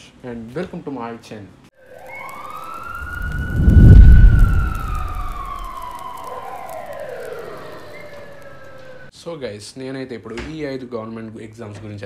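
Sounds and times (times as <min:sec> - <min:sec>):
siren-like gliding tone: 0:01.8 - 0:09.1
deep boom: 0:03.0 - 0:05.9.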